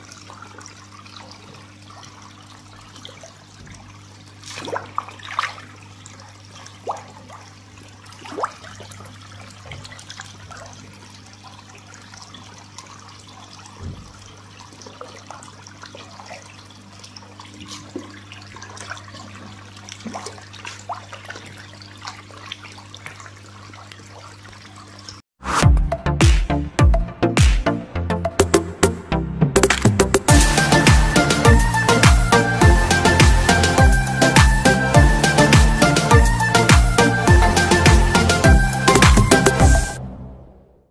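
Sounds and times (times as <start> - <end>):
fish splashing at surface: 0.0 - 25.2
water pouring into a fish tank: 0.0 - 25.2.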